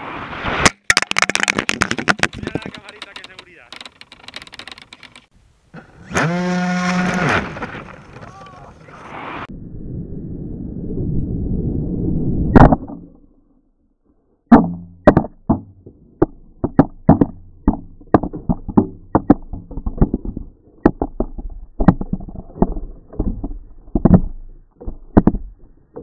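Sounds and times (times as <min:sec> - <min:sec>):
sharp knocks and clicks: 0:00.7 - 0:05.3, 0:14.5 - 0:26.0.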